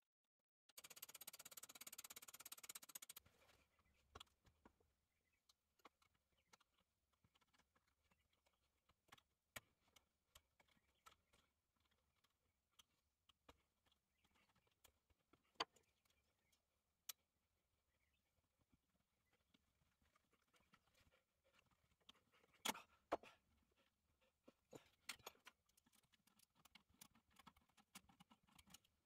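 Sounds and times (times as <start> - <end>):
quick run of ticks: 0.8 - 3.3.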